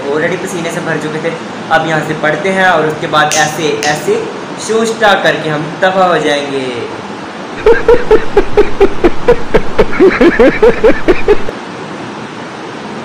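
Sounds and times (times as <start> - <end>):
man laughing loudly: 7.6 - 11.5.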